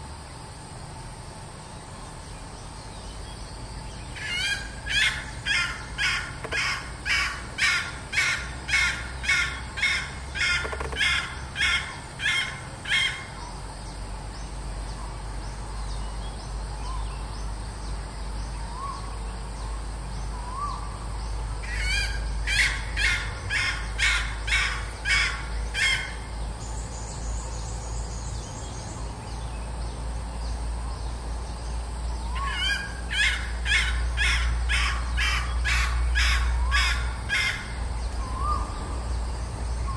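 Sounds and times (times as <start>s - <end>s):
junglefowl hen calling: 4.2s - 13.4s, 21.7s - 26.3s, 32.3s - 37.8s.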